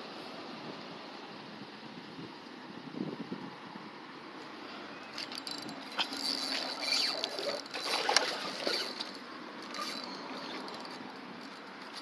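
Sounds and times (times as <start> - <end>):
water splashing in a pond: 5.8 - 9.6.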